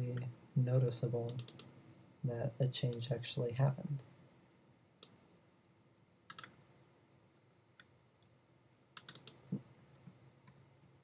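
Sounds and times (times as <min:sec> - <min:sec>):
faint low hum: 0:00.0 - 0:11.0
computer mouse clicks: 0:01.3 - 0:01.7, 0:06.3 - 0:06.6, 0:09.0 - 0:10.6.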